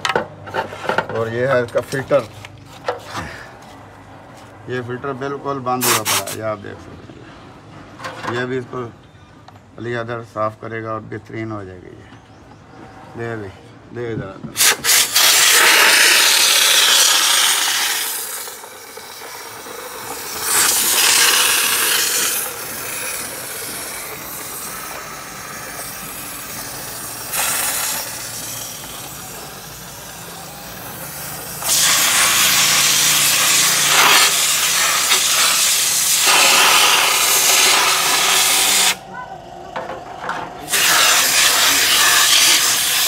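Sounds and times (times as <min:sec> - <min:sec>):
spray gun hissing: 0:14.6 - 0:39.0, 0:40.7 - 0:43.0.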